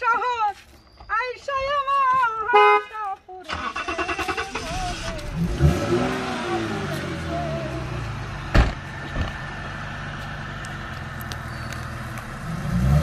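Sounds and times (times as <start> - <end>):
car engine idling: 3.5 - 13.0
car door slamming: 8.5 - 9.4.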